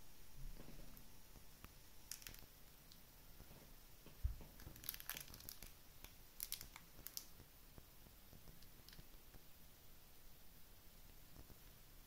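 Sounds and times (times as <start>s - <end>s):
plastic wrapping crinkling: 2.0s - 3.6s, 4.2s - 7.5s.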